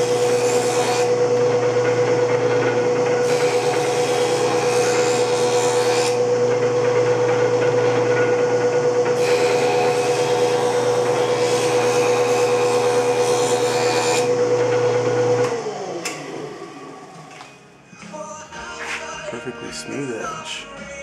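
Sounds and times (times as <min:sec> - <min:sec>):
cutterhead planing a board: 0:00.0 - 0:15.7
jointer motor hum: 0:00.0 - 0:17.4.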